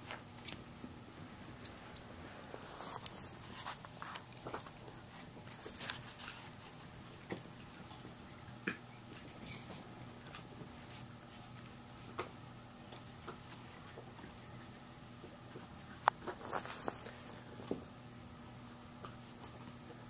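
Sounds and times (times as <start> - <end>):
puppies scampering on carpet: 0.0 - 17.9.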